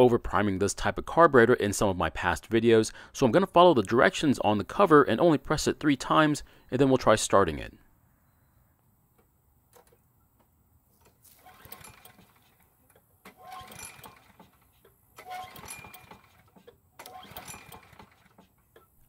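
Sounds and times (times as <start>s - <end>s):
lawn mower recoil starter whirring: 11.0s - 19.0s.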